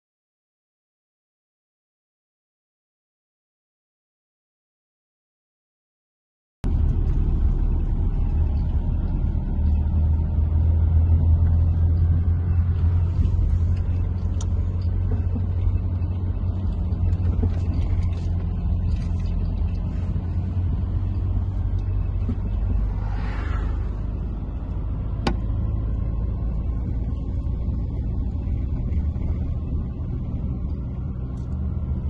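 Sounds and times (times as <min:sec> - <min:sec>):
car engine and road noise: 0:06.6 - 0:32.0
brief rushing sound: 0:22.4 - 0:25.0.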